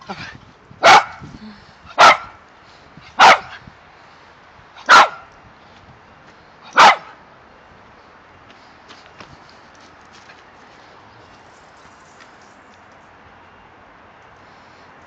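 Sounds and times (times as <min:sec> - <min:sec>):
small dog barking: 0:00.8 - 0:01.2, 0:02.0 - 0:02.4, 0:03.2 - 0:03.6, 0:04.8 - 0:05.3, 0:06.7 - 0:07.2.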